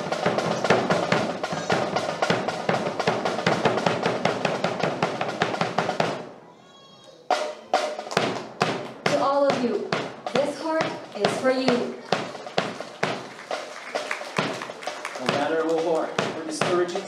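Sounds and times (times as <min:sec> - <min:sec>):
fast snare and bass drum beat: 0:00.0 - 0:06.3, 0:07.4 - 0:17.0
sharp knocks: 0:15.3 - 0:17.0.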